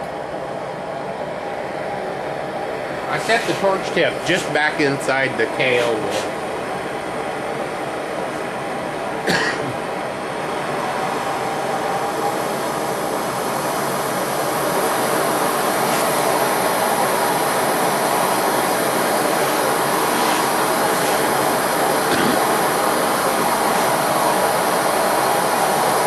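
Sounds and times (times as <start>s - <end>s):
torch flame rushing: 14.0s - 26.0s.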